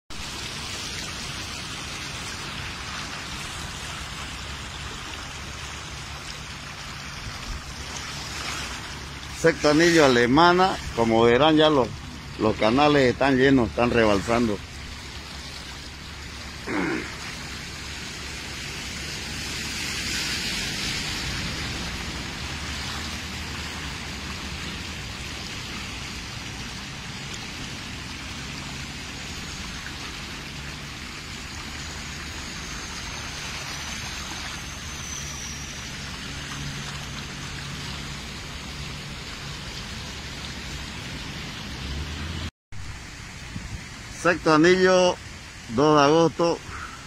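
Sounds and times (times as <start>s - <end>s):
heavy rain on a car: 14.7s - 44.2s.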